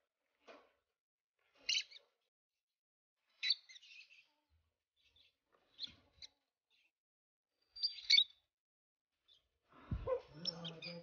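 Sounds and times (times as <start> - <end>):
lovebirds chirping: 1.6 - 2.2, 3.3 - 6.9, 7.6 - 8.5, 9.2 - 11.0.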